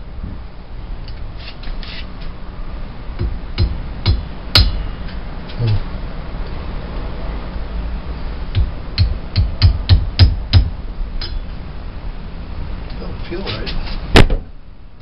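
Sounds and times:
hammer tapping metal: 3.2s - 4.8s, 8.5s - 11.4s.

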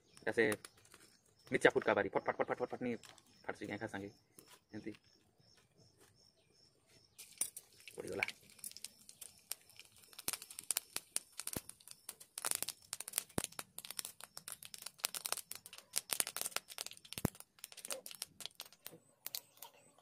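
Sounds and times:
mustard seeds popping in hot oil: 7.2s - 20.0s.

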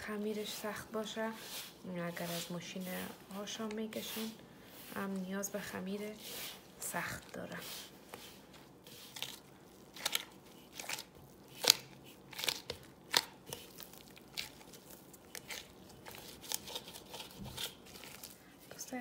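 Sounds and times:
hand kneading dough: 0.0s - 19.0s.

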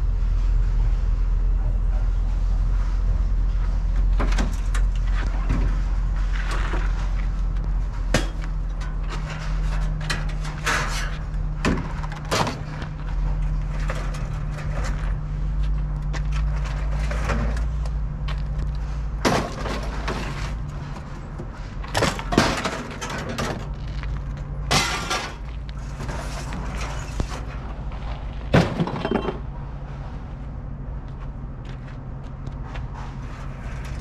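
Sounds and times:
steady low hum: 0.0s - 34.0s
scrap metal clattering crashes: 8.0s - 15.2s, 19.2s - 21.2s, 21.8s - 23.8s, 24.6s - 27.8s, 28.5s - 29.5s.

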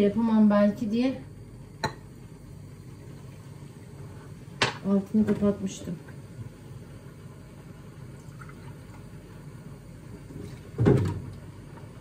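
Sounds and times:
liquid pouring into glass: 8.0s - 8.9s.

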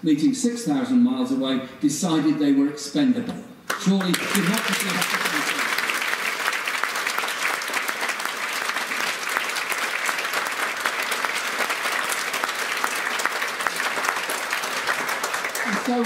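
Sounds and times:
audience applauding: 3.7s - 16.0s.

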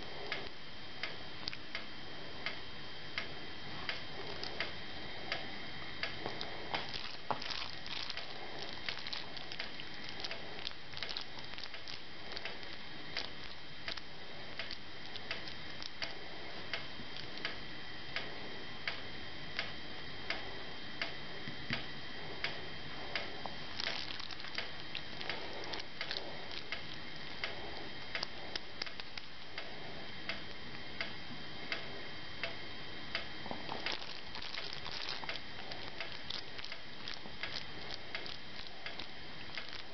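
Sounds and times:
faint high whine: 0.0s - 39.9s
squishing of mince kneaded by hand: 3.2s - 17.6s, 22.4s - 30.6s, 33.2s - 39.9s.

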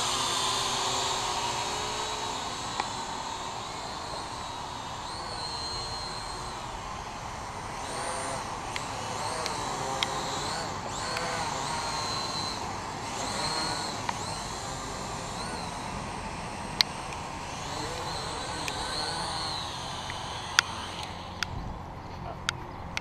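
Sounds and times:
quadcopter propellers whining: 0.0s - 23.0s
sharp clicks: 0.0s - 23.0s
steady rushing background: 0.0s - 23.0s.

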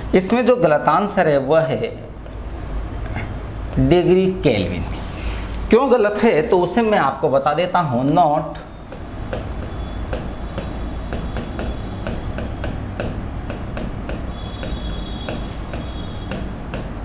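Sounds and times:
steady low hum: 0.0s - 17.0s
marker pen writing on board: 2.2s - 4.2s, 8.5s - 17.0s.

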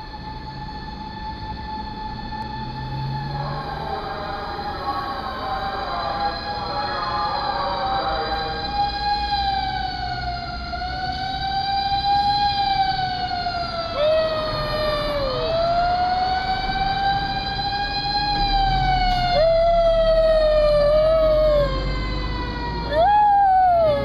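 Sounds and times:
wailing siren: 0.0s - 24.0s
dog howling: 19.3s - 21.9s, 22.8s - 24.0s.

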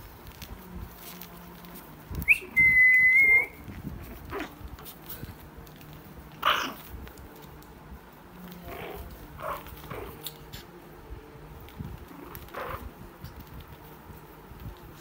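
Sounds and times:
high whistle-like tone: 2.2s - 3.6s.

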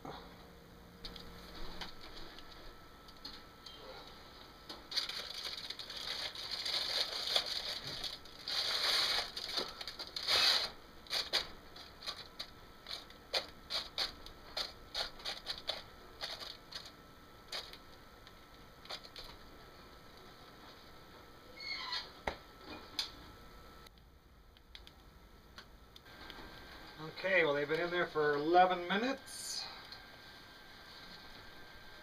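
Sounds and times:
aluminium foil crinkling: 4.7s - 18.0s, 18.8s - 19.5s.

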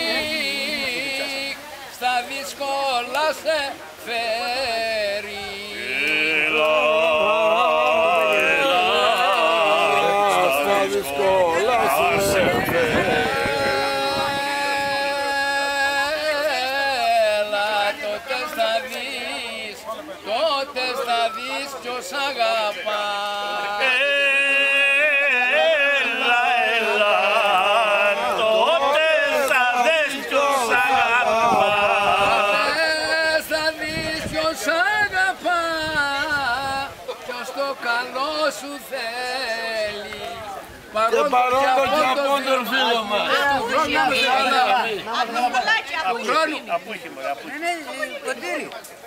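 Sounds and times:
men singing unaccompanied: 0.0s - 48.7s.

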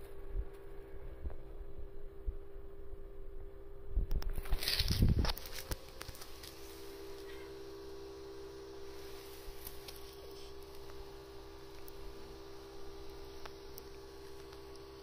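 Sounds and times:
faint steady hum: 0.0s - 15.0s
rustle and clicks: 4.1s - 7.6s.

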